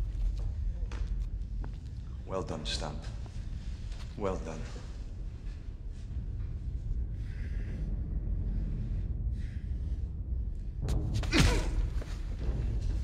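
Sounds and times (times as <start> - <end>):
low steady rumble: 0.0 - 11.1
man breathing raggedly: 6.2 - 10.8.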